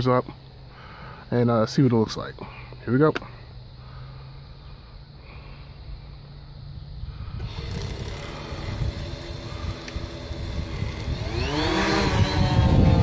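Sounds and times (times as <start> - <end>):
drone propellers whining: 7.0 - 13.0
wind rumble on microphone: 7.0 - 13.0.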